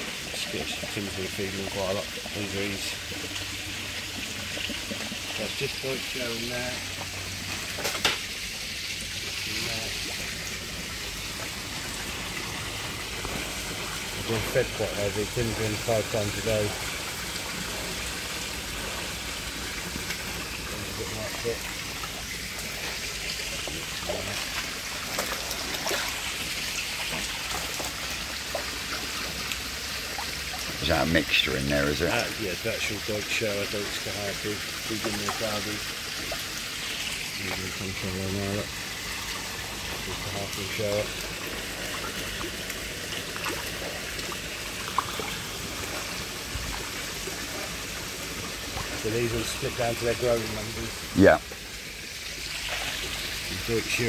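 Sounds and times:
small splashes and drips: 0.0s - 54.0s
water trickling into tank: 0.0s - 54.0s
sharp water splashes: 16.7s - 30.9s, 38.8s - 49.8s, 52.3s - 53.7s.

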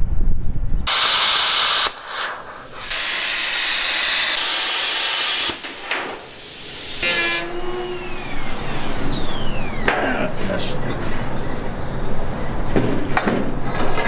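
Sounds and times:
plasma cutter hissing: 0.9s - 9.8s.

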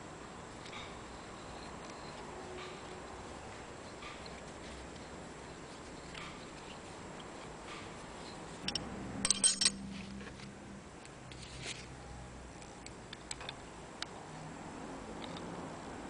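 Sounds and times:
metal tools clinking on workbench: 8.3s - 9.9s.

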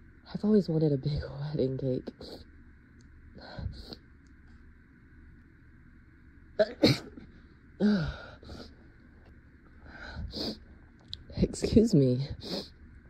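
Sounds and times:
woman talking: 0.3s - 2.4s, 11.2s - 12.5s
woman sneezing: 6.6s - 7.2s.

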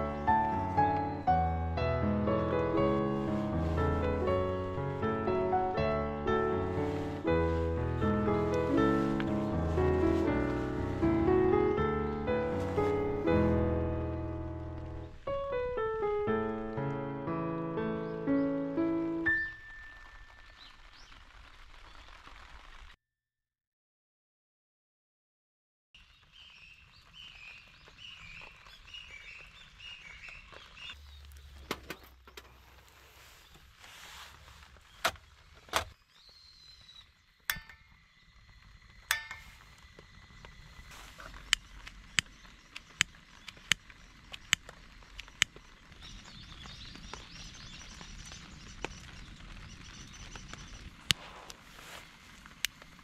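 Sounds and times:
faint rain: 0.0s - 23.0s, 26.0s - 53.0s
steady hiss: 2.4s - 15.1s, 37.2s - 53.0s
bird chirping: 26.0s - 33.6s, 34.8s - 51.0s
campfire snaps and pops: 26.1s - 33.0s, 34.6s - 53.0s
sharp clicks: 41.4s - 45.6s.

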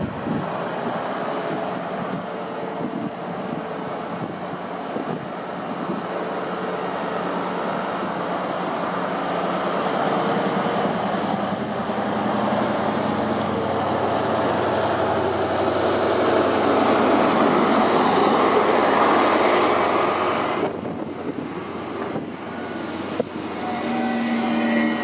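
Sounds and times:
train diesel engine drone: 0.0s - 25.0s
high squeal: 4.5s - 9.8s, 22.5s - 25.0s.

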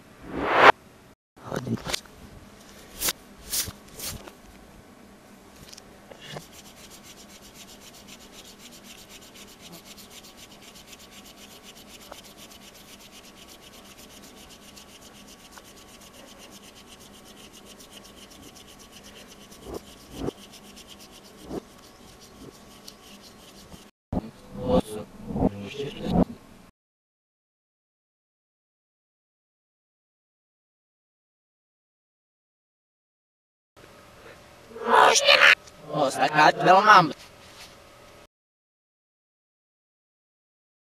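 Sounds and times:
pencil scratching on paper: 6.2s - 23.9s.

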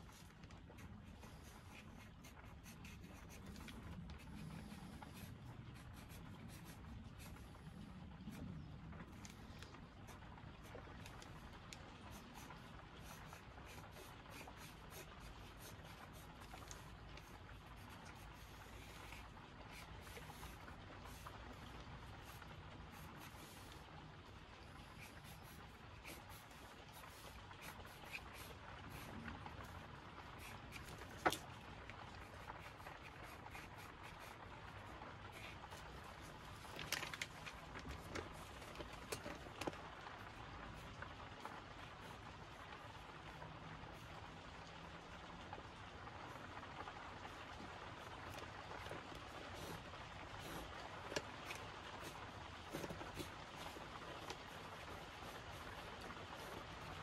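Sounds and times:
pencil scratching on paper: 0.0s - 7.4s, 12.0s - 21.4s, 22.2s - 23.8s, 24.8s - 29.1s, 30.4s - 31.4s, 32.2s - 34.4s, 50.4s - 56.9s.

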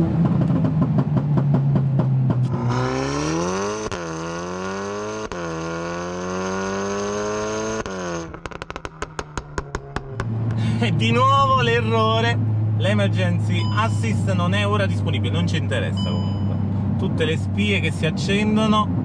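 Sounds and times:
exhaust pops and crackles: 0.0s - 2.9s, 6.7s - 10.9s
car engine accelerating: 0.0s - 19.0s.

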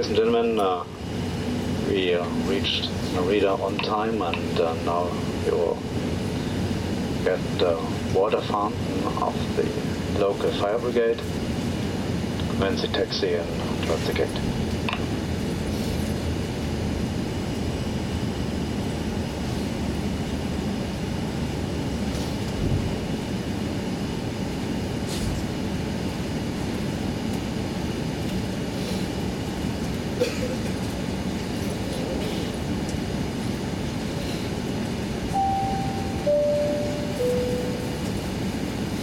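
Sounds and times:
aircraft cabin rumble: 0.0s - 39.0s
falling chime tones: 35.4s - 38.0s.

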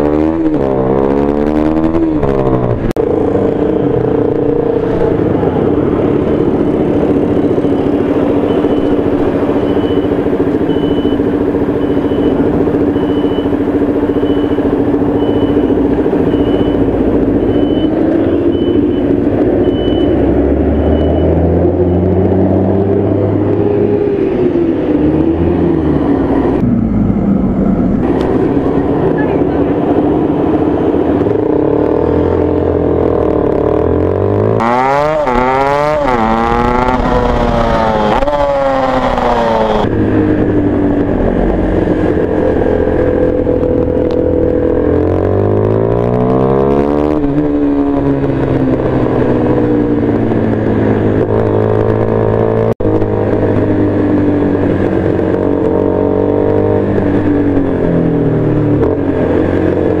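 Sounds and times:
motorcycle engine revving: 0.0s - 60.0s.

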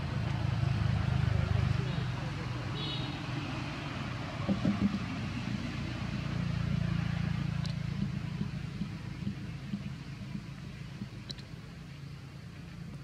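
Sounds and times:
engine humming: 0.0s - 13.0s
low thumps: 4.2s - 11.6s.

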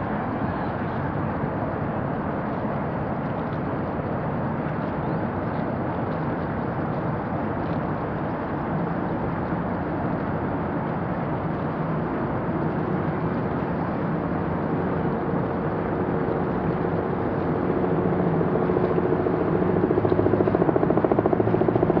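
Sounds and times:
noisy rush: 0.0s - 22.0s
engine running: 11.0s - 22.0s.

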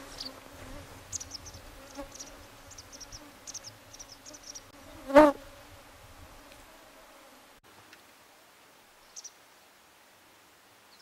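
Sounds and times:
insect buzzing: 0.0s - 7.6s.

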